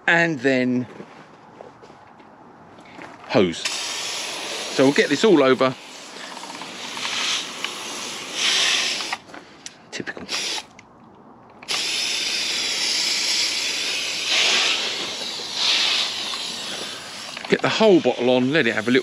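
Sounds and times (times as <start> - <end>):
foam sprayer hissing: 3.6 - 9.2, 10.3 - 10.7, 11.6 - 19.0
sprayer clicks: 6.1 - 10.9, 11.5 - 17.8.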